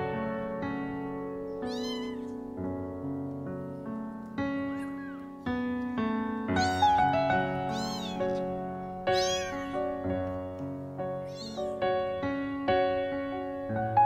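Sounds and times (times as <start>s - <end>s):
piano background music: 0.0s - 14.0s
kitten meowing: 1.5s - 2.5s, 4.7s - 5.4s, 6.5s - 10.4s, 11.2s - 11.8s.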